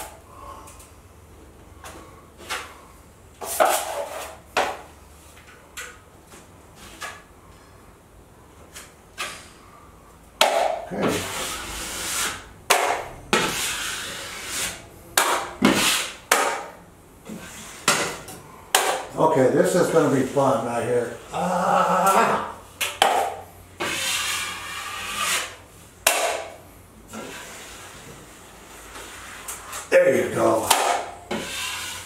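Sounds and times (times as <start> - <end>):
taping knife scraping drywall: 3.4 - 4.8, 10.4 - 16.7, 22.0 - 26.5, 27.1 - 29.9, 30.5 - 32.0.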